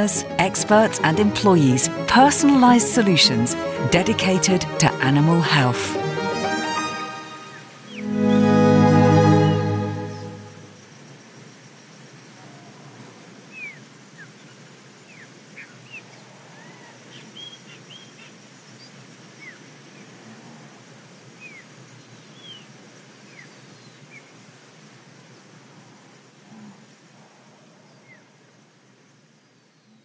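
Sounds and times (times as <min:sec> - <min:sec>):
steady background hiss: 0:06.8 - 0:30.0.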